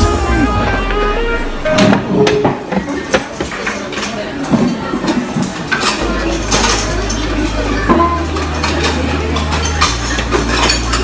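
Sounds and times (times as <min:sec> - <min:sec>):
utensils clinking on dishes: 0:02.3 - 0:11.0.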